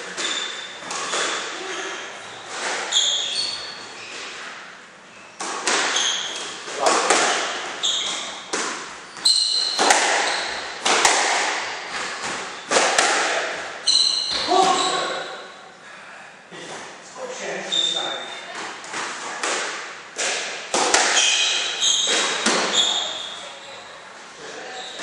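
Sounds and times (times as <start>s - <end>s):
squash ball hitting rackets and walls: 0.0s - 15.5s, 18.5s - 23.3s
shoes squeaking on wooden floor: 0.1s - 4.5s, 5.6s - 10.9s, 13.8s - 15.2s, 21.1s - 23.9s.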